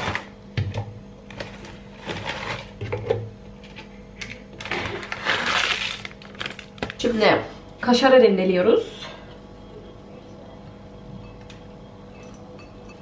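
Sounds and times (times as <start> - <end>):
steady low hum: 0.0 - 13.0
dry noodles crackling: 4.6 - 7.3.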